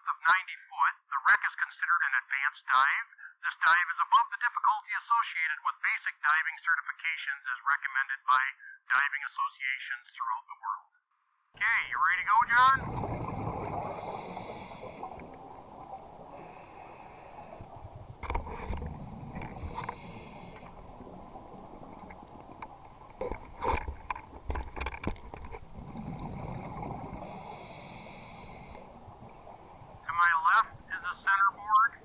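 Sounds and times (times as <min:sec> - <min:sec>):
bubbling exhalations: 0:12.4 - 0:30.1
regulator hissing inhalations: 0:13.5 - 0:21.1, 0:25.9 - 0:29.0.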